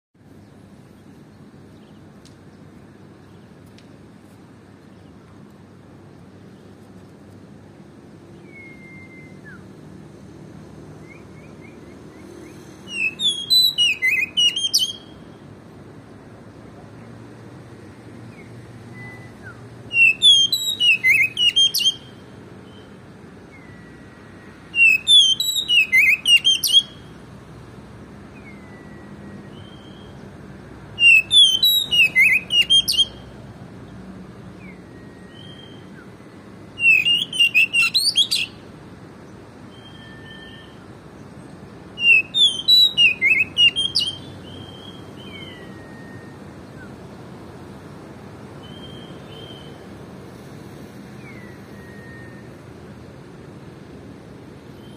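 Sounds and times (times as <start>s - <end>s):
songbird whistling song: 8.2s - 10.0s, 10.6s - 16.2s, 18.2s - 27.4s, 28.2s - 33.4s, 34.5s - 38.7s, 39.6s - 47.2s, 48.6s - 50.0s, 51.1s - 52.8s, 54.7s - 54.9s
soft single bird whistles: 8.4s - 9.6s, 39.8s - 40.8s.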